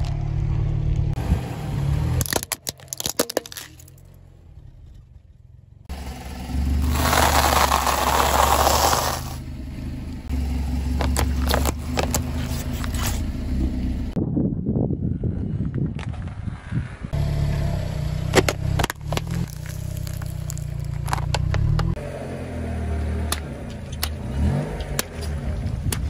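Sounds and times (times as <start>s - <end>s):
car engine running low: 0.0s - 26.0s
tyre crushing things on asphalt: 2.2s - 4.0s, 6.8s - 9.4s, 11.0s - 13.2s, 18.3s - 21.9s
tyre crunching dry noodles: 6.8s - 9.4s, 19.0s - 21.2s.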